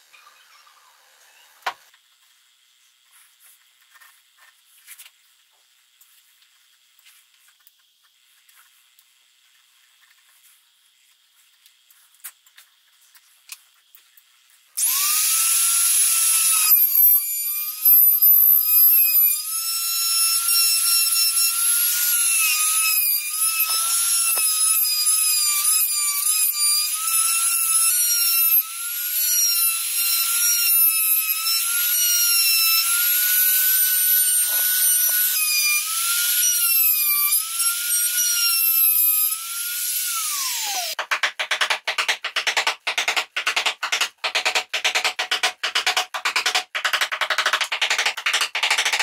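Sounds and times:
trim router whining: 0:14.8 - 0:41.0.

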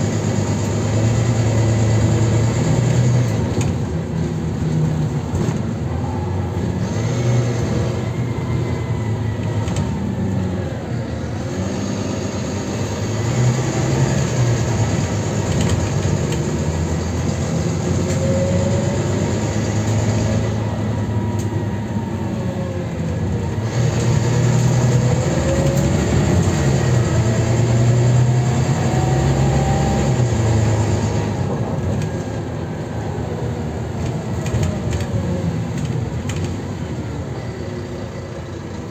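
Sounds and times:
bus diesel engine: 0:00.0 - 0:38.9
road noise: 0:00.0 - 0:38.9.

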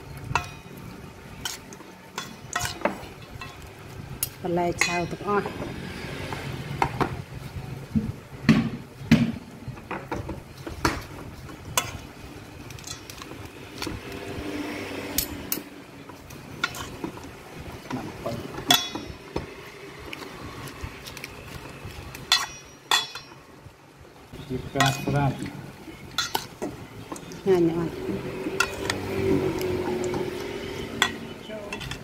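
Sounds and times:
metal spoons clinking in a steel bowl: 0:00.3 - 0:00.7, 0:01.4 - 0:05.4, 0:12.7 - 0:13.3, 0:15.2 - 0:15.7, 0:18.6 - 0:19.2, 0:22.3 - 0:23.4, 0:24.7 - 0:25.5, 0:26.1 - 0:27.5, 0:28.6 - 0:29.0, 0:30.9 - 0:32.0.

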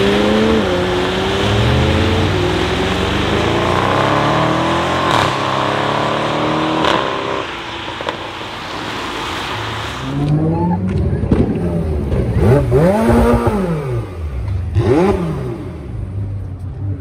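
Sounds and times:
tyres hissing on wet road: 0:00.0 - 0:10.4
cars accelerating hard: 0:00.0 - 0:16.1.

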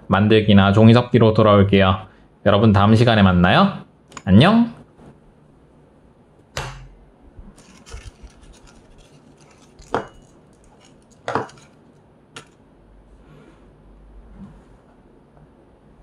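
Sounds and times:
paper rustling: 0:07.5 - 0:11.9.

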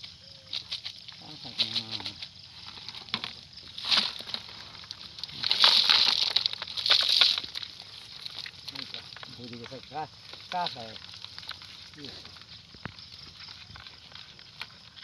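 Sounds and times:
wet rustling and sloshing net: 0:03.8 - 0:09.4
fish splashing in bucket: 0:04.0 - 0:09.2.

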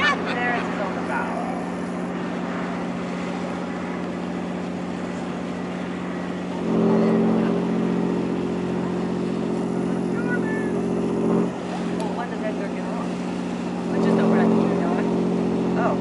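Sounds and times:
boat diesel engine droning: 0:00.0 - 0:16.0
steady-pitched tone: 0:06.6 - 0:11.6.

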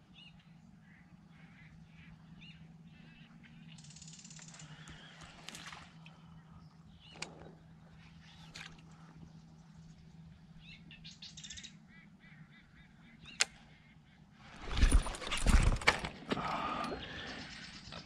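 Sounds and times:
birds calling: 0:00.0 - 0:18.0
faint low hum: 0:00.0 - 0:18.0
sharp click: 0:13.3 - 0:13.6.

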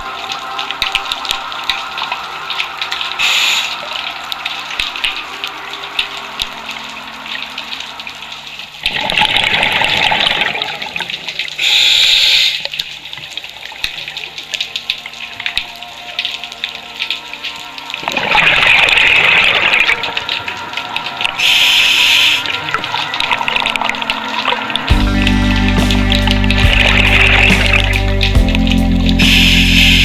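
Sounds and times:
exhaled bubbles rushing underwater: 0:00.0 - 0:11.6, 0:12.8 - 0:28.7
faint crackling clicks underwater: 0:00.0 - 0:29.6
short high hiss: 0:29.2 - 0:30.0.

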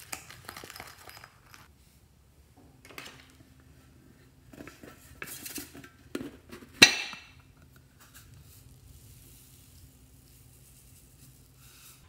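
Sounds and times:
foam beads pattering: 0:08.0 - 0:12.0.

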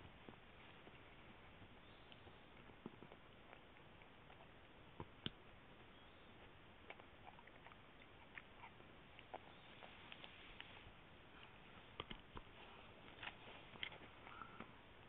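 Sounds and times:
dog chewing cartilage: 0:02.1 - 0:10.2.

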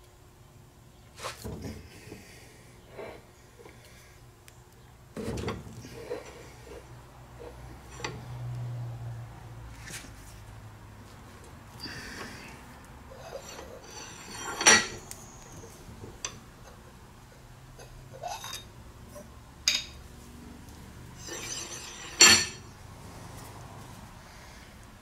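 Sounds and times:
loud ringing metal clanks: 0:21.2 - 0:22.7.

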